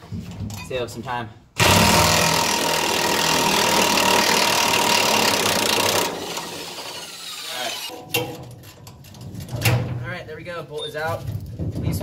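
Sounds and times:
electric impact wrench hammering: 1.6 - 8.5.

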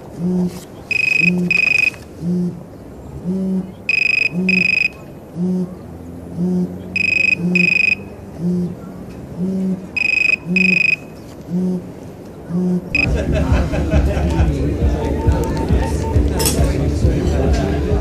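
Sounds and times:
low pulsing buzz: 0.0 - 18.0.

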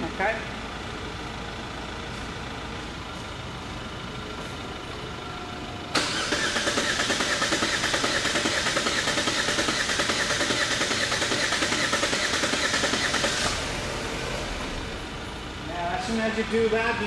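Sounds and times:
starter motor cranking engine: 6.0 - 15.1.

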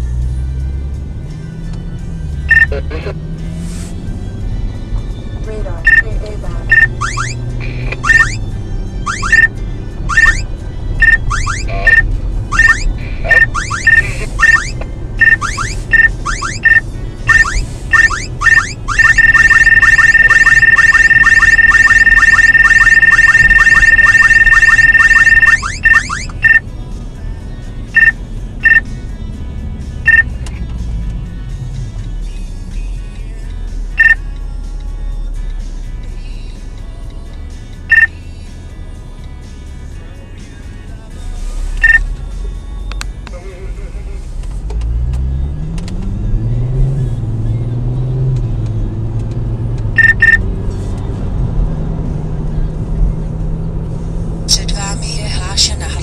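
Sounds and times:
car cabin and road noise: 0.0 - 56.0
radar detector beeping and chirping: 2.5 - 2.8, 5.8 - 8.4, 9.1 - 26.6, 28.0 - 28.8, 30.1 - 30.3, 41.8 - 42.0, 50.0 - 50.4
short single beeps: 2.5 - 2.8, 5.8 - 6.1, 6.7 - 8.4, 9.1 - 26.6, 28.0 - 28.9, 30.1 - 30.3, 34.0 - 34.2, 37.9 - 38.1, 41.8 - 42.0, 50.0 - 50.4.

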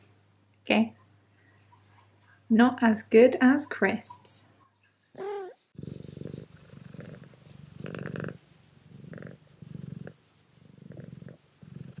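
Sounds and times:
cat purring: 5.2 - 12.0.

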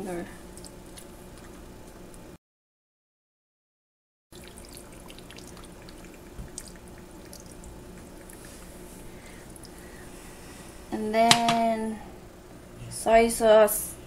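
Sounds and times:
liquid trickling and dripping: 4.3 - 9.9
steady low hum: 4.4 - 14.0.

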